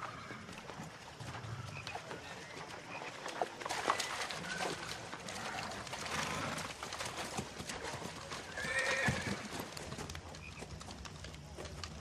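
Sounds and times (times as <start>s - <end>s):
hooves splashing in water: 0.6s - 10.6s
horse whinny: 8.4s - 9.5s.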